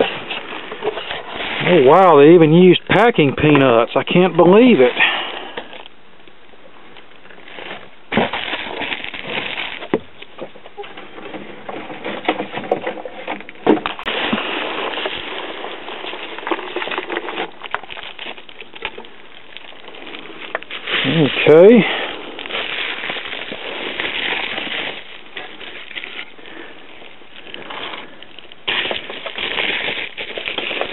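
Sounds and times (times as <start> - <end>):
packing materials rustling: 7.3 - 11.0, 13.9 - 30.9
sharp crackles and clicks: 13.4 - 30.9.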